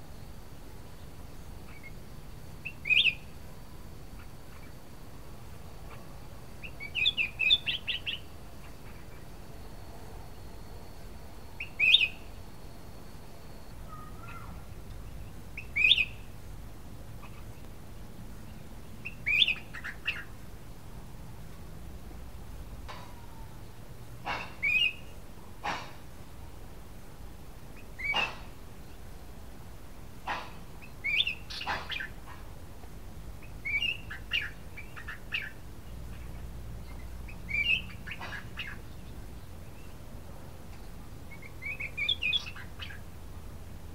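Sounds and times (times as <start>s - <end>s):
bird chirping: 1.0s - 2.0s, 2.6s - 3.4s, 5.8s - 9.4s, 11.6s - 12.4s, 13.6s - 16.3s, 17.2s - 17.7s, 18.4s - 20.4s, 22.9s - 25.2s, 27.8s - 29.1s, 30.3s - 32.3s, 33.4s - 40.0s, 40.7s - 43.1s
bird singing whistled phrases: 2.7s - 3.2s, 6.7s - 8.2s, 11.6s - 12.2s, 15.6s - 16.2s, 19.1s - 20.3s, 33.6s - 35.5s, 37.5s - 38.0s.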